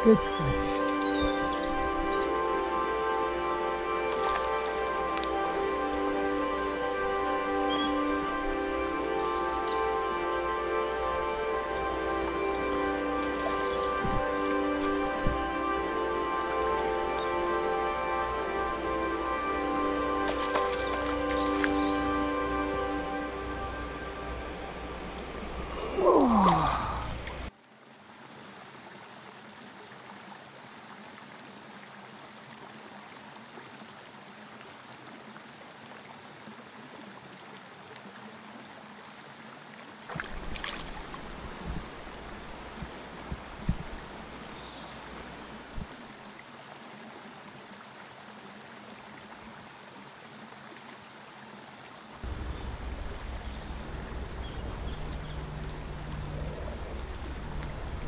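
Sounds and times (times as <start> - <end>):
music falling in pitch: 0.0 - 26.8
river water trickling over stones: 0.0 - 58.0
knocks and splashes at water's edge: 20.2 - 22.0, 40.1 - 44.1.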